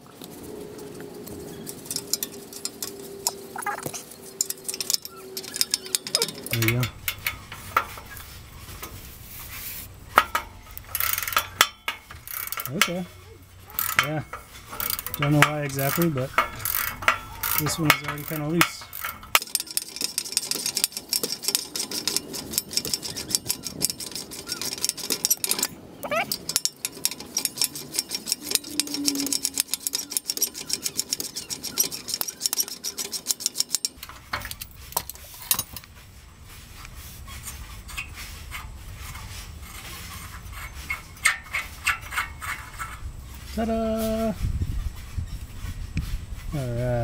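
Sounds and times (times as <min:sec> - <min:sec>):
socket ratchet clicking: 0:10.2 - 0:13.0, 0:13.7 - 0:34.1.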